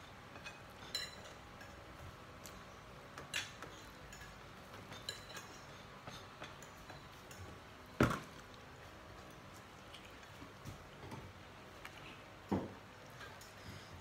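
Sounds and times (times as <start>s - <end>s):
spoon clicking on plates: 3.2s - 7.5s.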